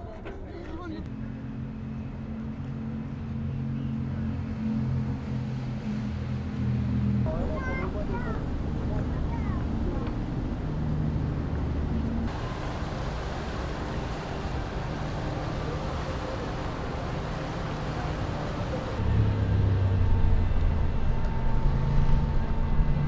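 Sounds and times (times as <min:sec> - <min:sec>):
outdoor city ambience: 0:00.0 - 0:23.0
engine drone: 0:01.1 - 0:23.0.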